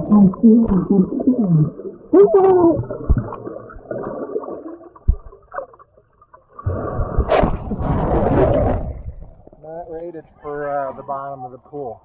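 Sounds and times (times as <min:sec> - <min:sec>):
low underwater thumps: 0:00.0 - 0:05.6
warbling underwater tones: 0:00.0 - 0:09.6
water gurgling: 0:00.0 - 0:09.8.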